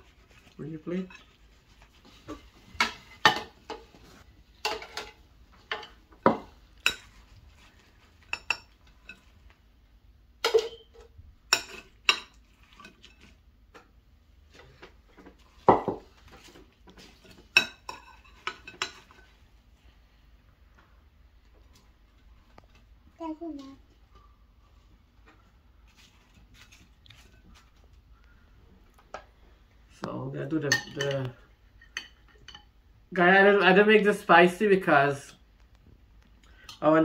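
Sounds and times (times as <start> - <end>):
metal spoons clinking on plates: 10.4 - 13.3, 30.7 - 32.7.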